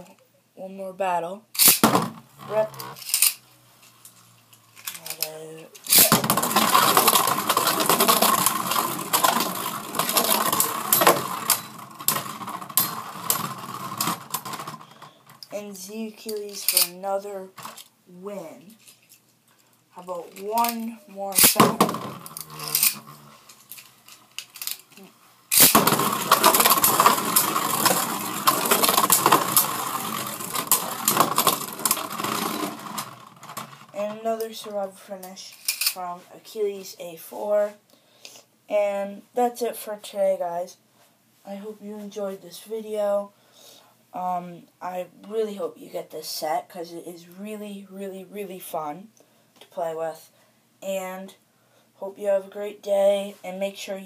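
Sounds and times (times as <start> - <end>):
spinning tops clacking together: 1.6 - 3.4, 4.6 - 15.6, 16.3 - 17.0, 20.3 - 33.9, 35.5 - 36.0
spinning tops whirring: 5.0 - 15.2, 20.4 - 23.8, 25.5 - 33.9
sharp clacks of collisions: 25.5 - 33.9.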